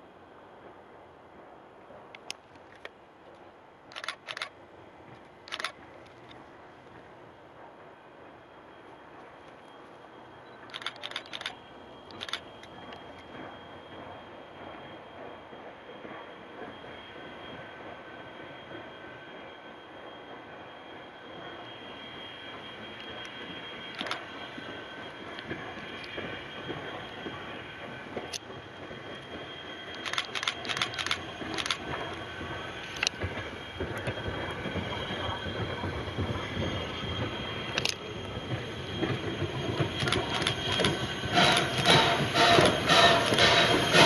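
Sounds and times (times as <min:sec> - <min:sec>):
train wheels squealing on rails: 0:03.9 - 0:44.0
locomotive clatter: 0:10.4 - 0:16.9, 0:22.5 - 0:44.0.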